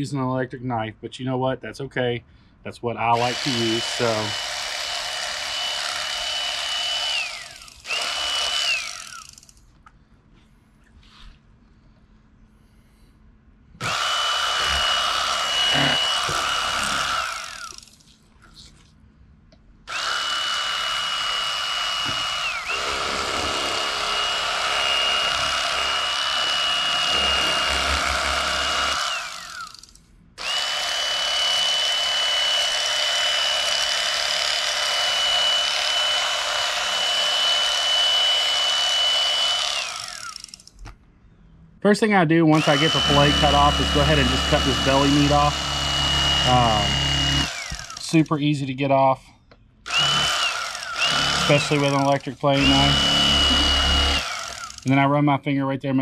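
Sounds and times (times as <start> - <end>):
electric knife motor whine: 3.3 - 9.6, 13.8 - 18.1, 19.9 - 40.7, 42.6 - 48.0, 49.9 - 54.9.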